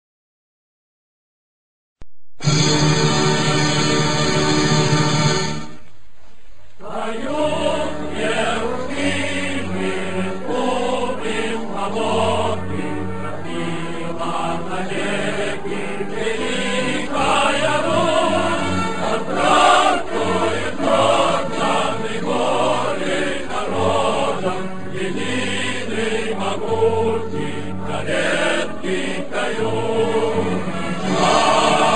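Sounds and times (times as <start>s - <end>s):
choir singing a slow chant: 6.8s - 31.9s.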